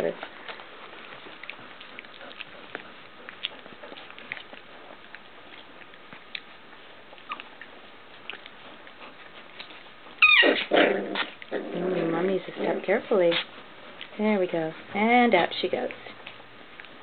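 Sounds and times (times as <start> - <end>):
puppies suckling and smacking: 0.0 - 17.0
high-pitched puppy yelp: 7.2 - 7.5, 10.2 - 10.7.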